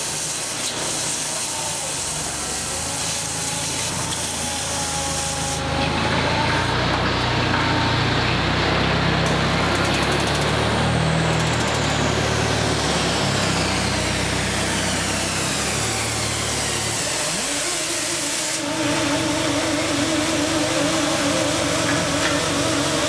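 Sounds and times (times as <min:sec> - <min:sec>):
hiss of air: 0:00.0 - 0:05.6
chain hoist motor whine: 0:00.0 - 0:23.0
machinery drone: 0:00.0 - 0:23.0.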